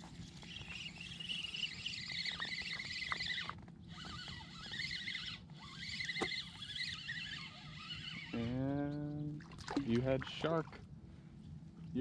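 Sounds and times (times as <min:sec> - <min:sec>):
fishing reel squeaky whirring: 0:00.0 - 0:09.2.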